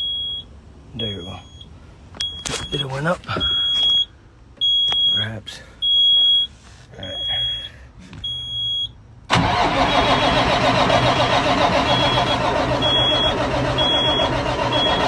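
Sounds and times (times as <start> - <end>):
starter cranking diesel engine: 9.3 - 15.0.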